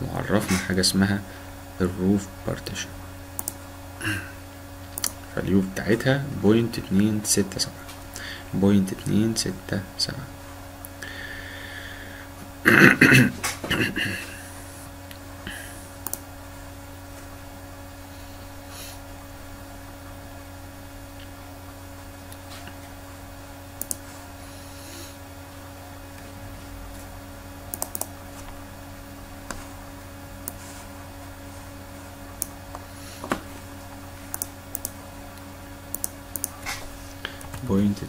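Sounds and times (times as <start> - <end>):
low electrical hum: 0.0 - 38.0
computer mouse clicks: 3.4 - 3.6, 5.0 - 5.2, 16.0 - 16.2, 23.8 - 24.0, 27.7 - 28.1, 34.3 - 35.0, 35.9 - 36.6
keyboard keys clicking: 27.7 - 28.1.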